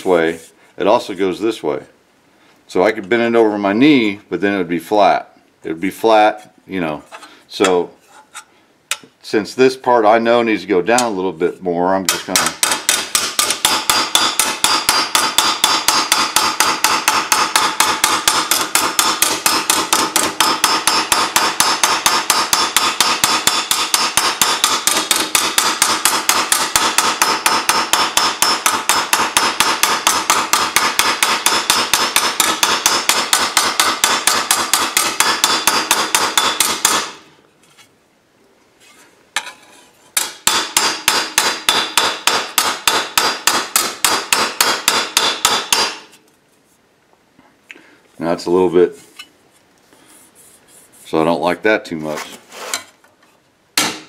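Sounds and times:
hammer tapping sheet steel: 12.1 - 37.2, 40.2 - 46.2.

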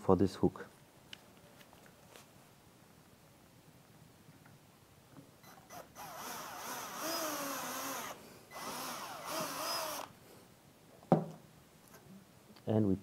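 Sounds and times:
drill motor whining: 5.5 - 10.1.

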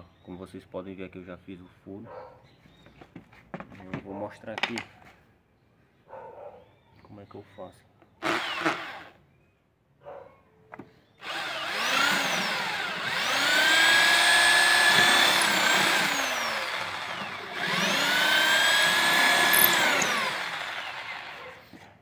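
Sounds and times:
electric drill whine: 8.2 - 9.2, 11.2 - 21.7.

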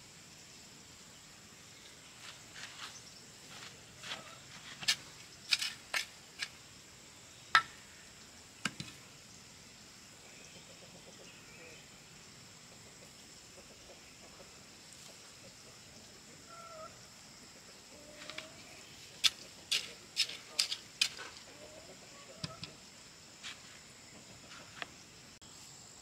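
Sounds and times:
high insect drone: 0.0 - 26.0
chicken clucking: 10.6 - 11.3, 12.7 - 22.8, 24.1 - 24.9
hand hoe chopping into soil: 19.2 - 21.4.

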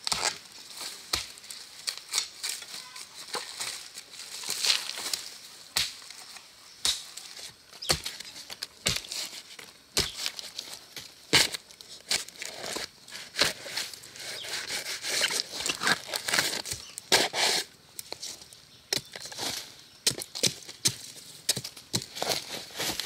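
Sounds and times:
dry plants crackling and snapping: 0.0 - 14.1, 15.2 - 17.1.

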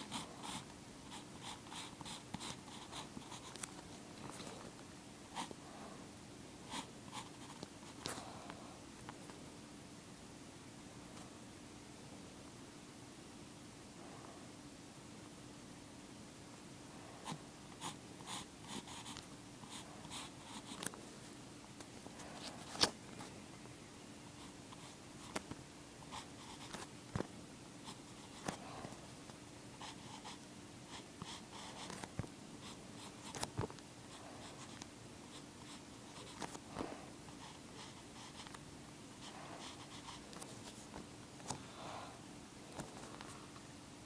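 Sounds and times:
faint steady hum: 0.0 - 44.0.

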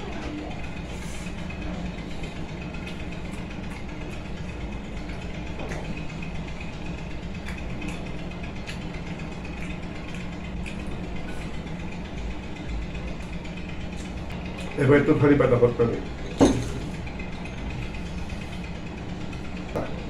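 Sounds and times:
low machine hum: 0.0 - 20.0
faint clicks of eating: 2.2 - 14.8.

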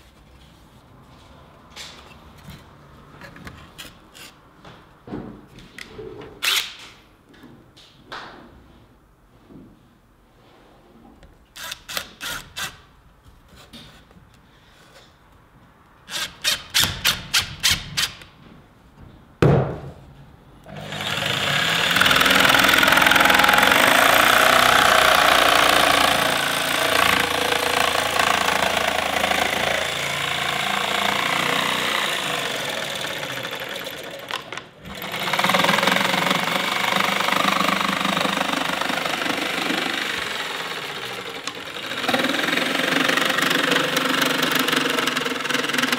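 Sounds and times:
thump: 19.4 - 20.0
impact driver hammering bursts: 20.7 - 45.9
jigsaw sawing wood: 20.7 - 45.9.

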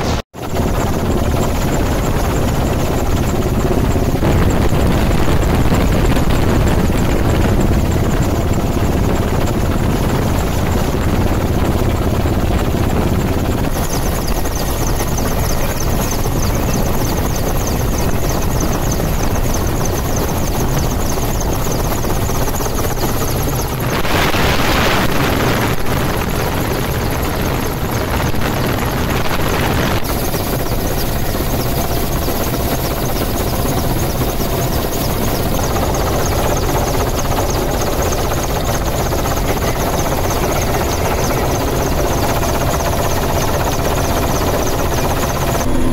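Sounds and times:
helicopter rotor and engine drone: 0.0 - 45.9.

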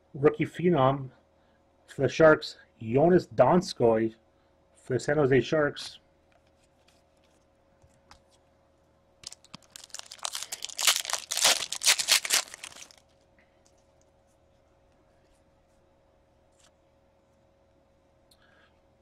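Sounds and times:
plastic wrapper crinkling: 9.2 - 13.2.

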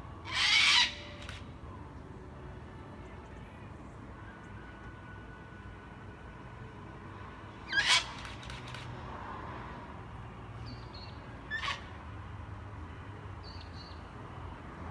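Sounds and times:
cockatoo screeching: 0.3 - 1.3, 7.7 - 8.3, 11.5 - 11.9.

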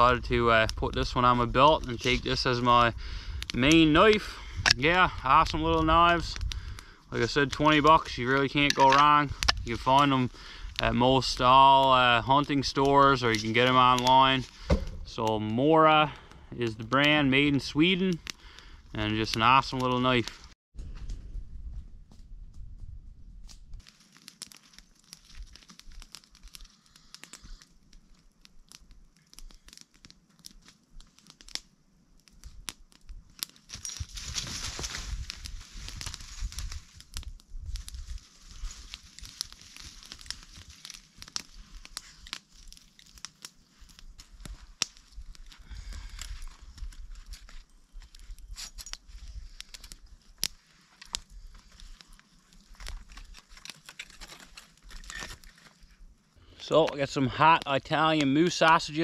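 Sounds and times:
campfire crackling: 0.0 - 21.1, 23.2 - 59.0
twig snaps: 23.4 - 27.5, 28.1 - 55.8
grill basket and sticks rustling: 23.4 - 31.6, 32.3 - 56.0.

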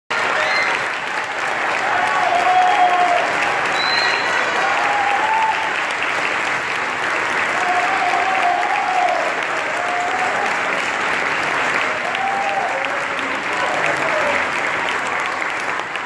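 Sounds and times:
audience applauding: 0.1 - 16.0.

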